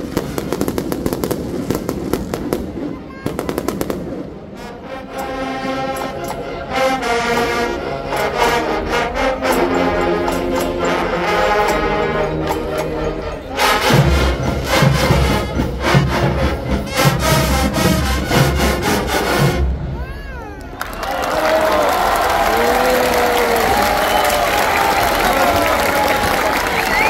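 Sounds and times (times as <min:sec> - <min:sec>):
brass section sustained chords: 0:04.1 - 0:20.0
drums and cymbals hits: 0:13.6 - 0:20.0.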